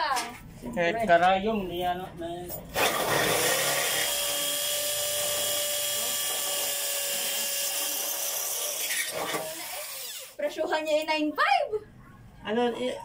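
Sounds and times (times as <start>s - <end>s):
electric drill whining: 2.8s - 10.4s.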